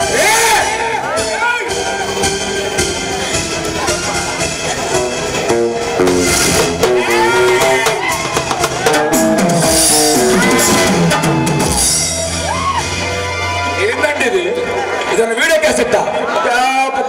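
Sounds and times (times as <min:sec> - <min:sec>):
drum beat: 0:05.2 - 0:12.8.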